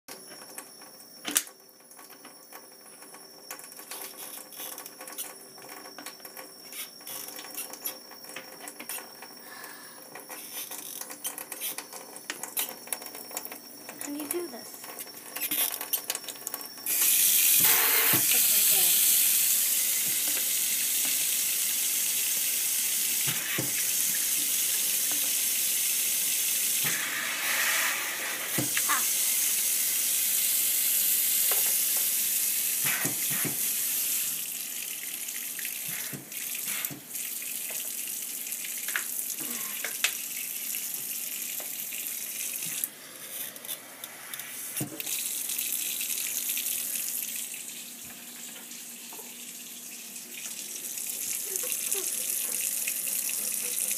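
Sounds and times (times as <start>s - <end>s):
tap water running into sink: 10.2s - 27.0s, 28.5s - 42.9s, 44.3s - 53.9s.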